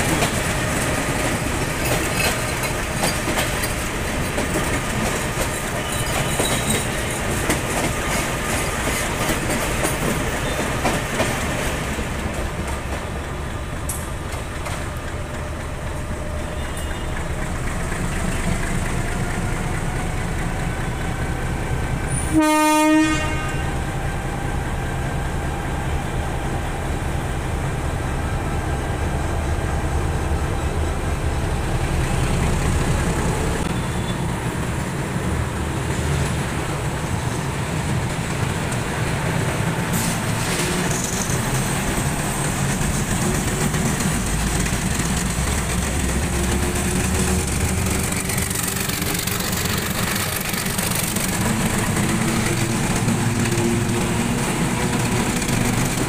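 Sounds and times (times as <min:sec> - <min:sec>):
train wheels and engine rumble: 0:00.0 - 0:56.0
train horn blast: 0:22.2 - 0:23.8.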